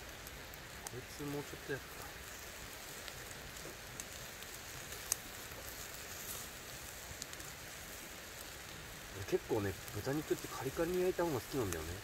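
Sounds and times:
meat sizzling on a grill: 0.0 - 12.0.

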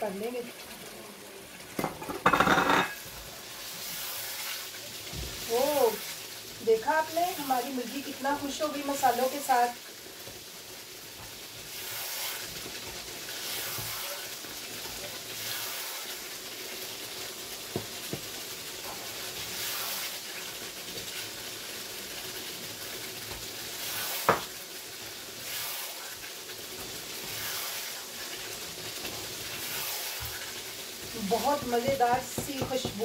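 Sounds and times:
food sizzling in a pan: 0.0 - 33.0
spatula scraping a pan: 11.2 - 16.2, 18.8 - 20.3, 23.6 - 24.5, 25.3 - 33.0
spatula knocking against pan: 31.5 - 33.0.

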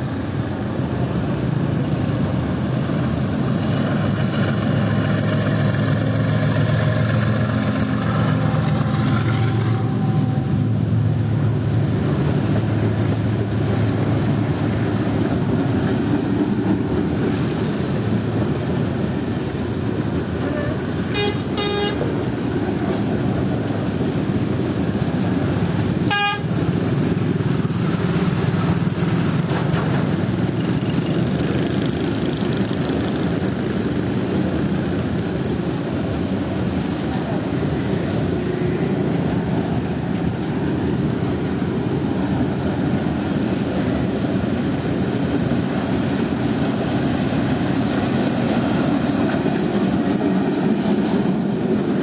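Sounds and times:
freight wagons rumbling past: 0.0 - 52.0
short horn toots: 21.1 - 22.0, 26.1 - 26.5.

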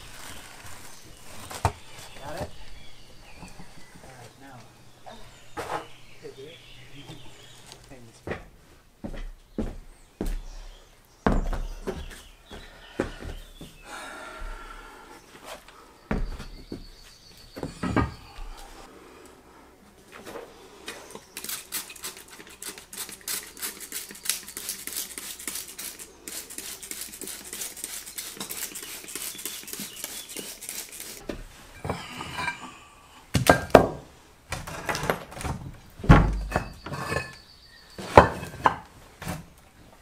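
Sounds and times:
hand scraping stone tile: 21.4 - 31.2, 36.5 - 37.4.

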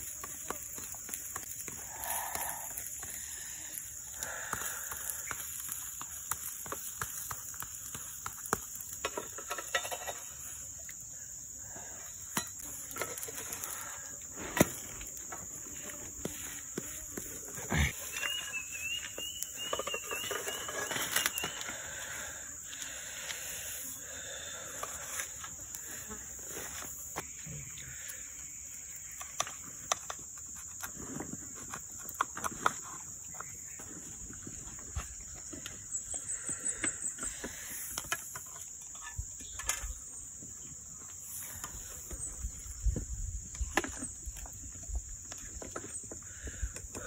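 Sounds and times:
insects droning: 0.0 - 47.0.

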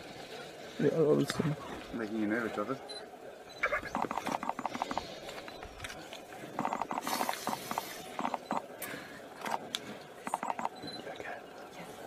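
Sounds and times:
rapid pulsing animal calls: 3.6 - 5.2, 6.6 - 8.6
hiss-like noise: 6.9 - 9.2.

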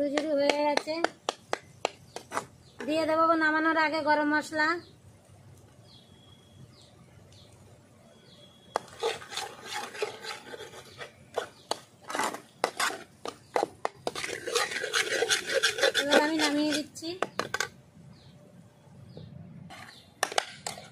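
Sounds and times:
faint high chirps: 4.8 - 9.0
metal spatula scraping a pan: 8.7 - 17.7.

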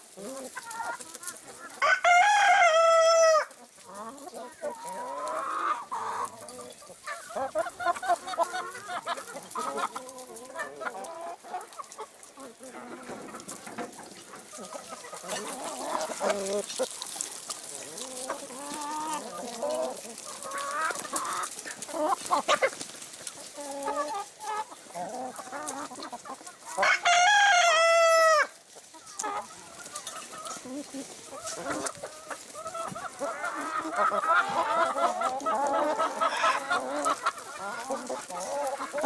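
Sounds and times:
chickens clucking: 0.0 - 39.0
rooster crowing: 1.8 - 3.5, 26.9 - 28.5.

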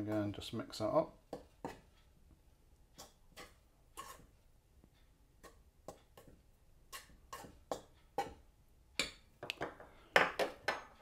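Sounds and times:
fingers stirring flour in metal bowl: 0.0 - 2.2, 2.9 - 8.5.

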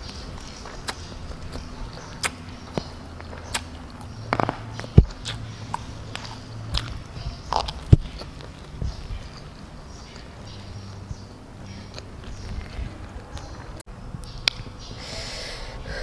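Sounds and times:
chewing: 0.0 - 11.1.

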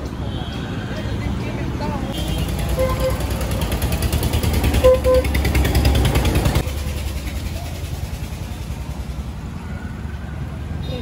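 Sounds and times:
vehicle engine and road rumble: 0.0 - 11.0.

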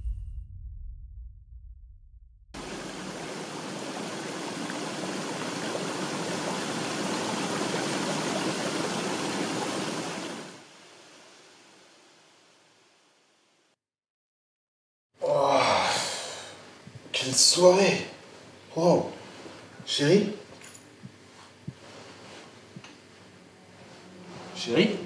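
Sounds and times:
running water rushing: 2.6 - 12.6.

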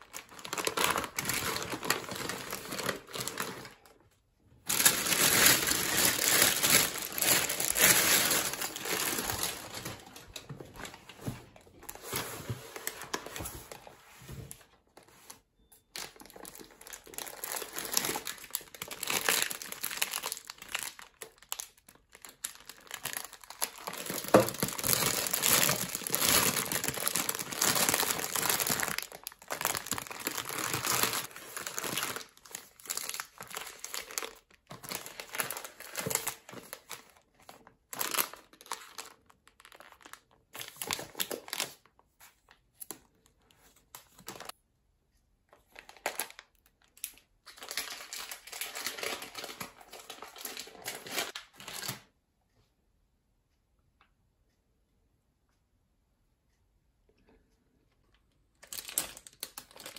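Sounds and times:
snack wrappers crinkling: 0.0 - 3.9, 4.7 - 10.5, 16.0 - 41.9, 45.7 - 51.9, 58.6 - 59.9.

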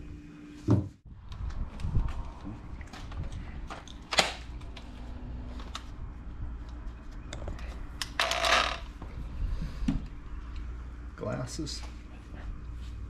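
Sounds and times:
steady low rumble: 1.1 - 8.0
angle grinder clicks and rattles: 8.0 - 8.9.

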